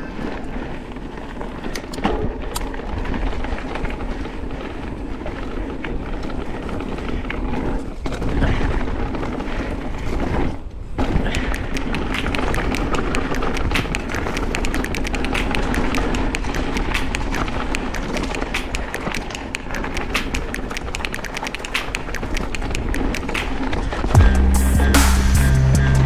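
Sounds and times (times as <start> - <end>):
bike tyres on rough ground: 0.0 - 24.6
bike rattling: 0.0 - 26.0
steady rushing noise: 0.0 - 26.0.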